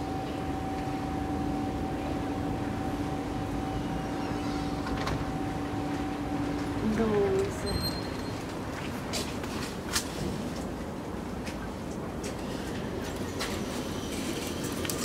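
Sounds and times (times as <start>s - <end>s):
higher machine tone: 0.0s - 8.4s
low machine hum: 0.0s - 8.5s.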